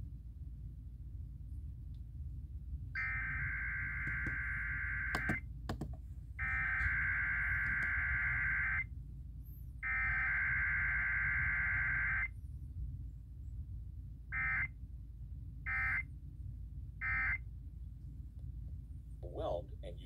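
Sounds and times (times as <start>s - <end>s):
low hum: 0.0s - 20.0s
clicks: 4.0s - 4.4s, 5.1s - 6.0s, 7.6s - 8.0s.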